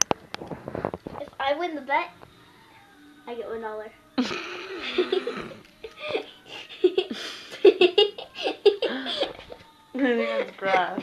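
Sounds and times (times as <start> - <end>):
people laughing: 4.2 - 9.6.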